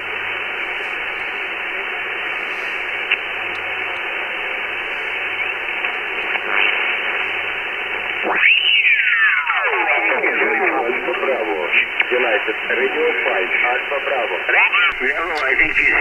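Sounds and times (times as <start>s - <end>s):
radio receiver hiss: 0.0s - 16.0s
radio signal sliding in pitch: 14.8s - 16.0s.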